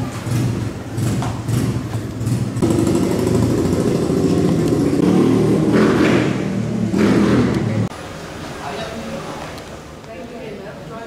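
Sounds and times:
vehicle engine running: 0.0 - 7.9.

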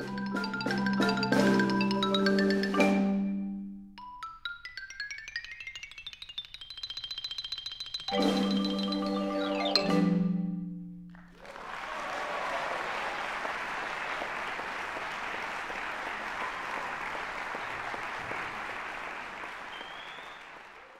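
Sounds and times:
xylophone and mallet percussion ringing: 0.0 - 11.0
audience applause: 11.2 - 20.9.

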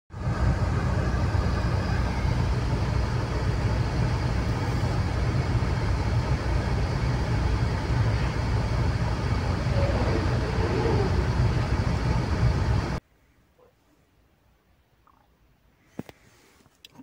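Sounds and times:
car engine rumble: 0.1 - 13.0
tyre and road noise: 0.2 - 13.0.

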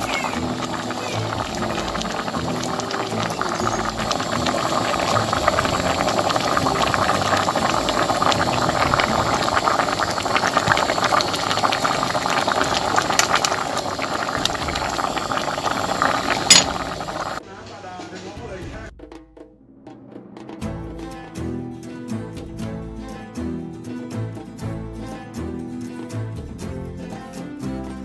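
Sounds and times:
stew boiling in a pot: 0.0 - 18.9.

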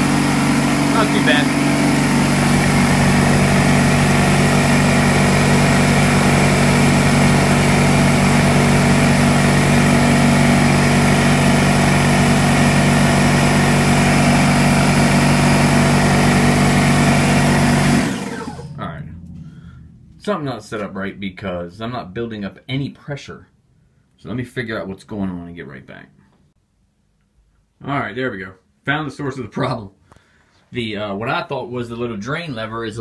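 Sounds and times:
air compressor running with rattle: 0.0 - 19.9.

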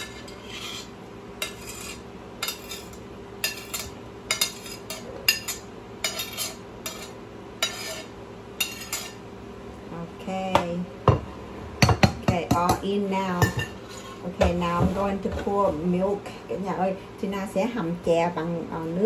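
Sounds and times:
steady low hum: 0.0 - 19.0
metal spatula clinking on plate: 1.4 - 8.0, 8.6 - 9.2.

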